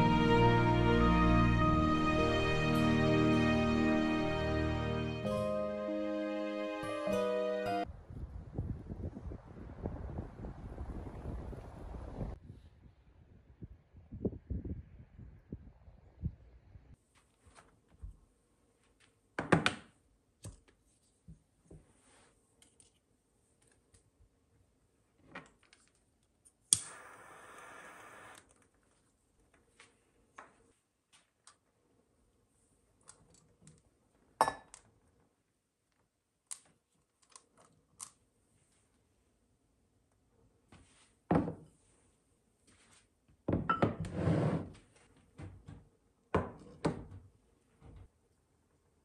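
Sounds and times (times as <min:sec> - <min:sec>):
lighter spark click: 0:26.7 - 0:28.4
objects knocking on countertop: 0:43.5 - 0:44.0.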